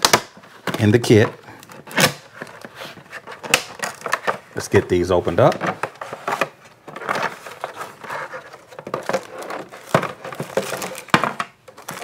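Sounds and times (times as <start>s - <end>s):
sharp plastic snaps: 0.0s - 0.8s, 3.4s - 4.4s
plastic packaging crinkling: 0.8s - 12.0s.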